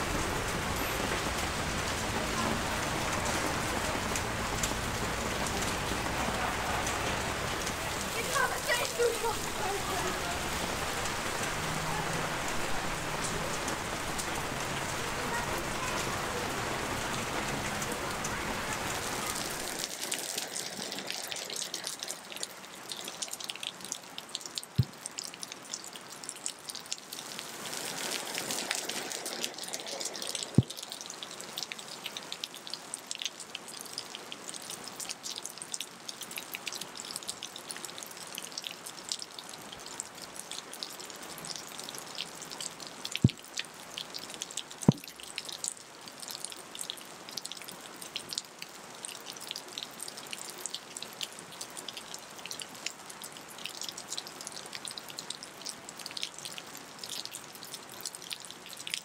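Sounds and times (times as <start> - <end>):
heavy rain hissing: 0.0 - 22.3, 27.2 - 30.8
dripping water drops: 41.4 - 45.8.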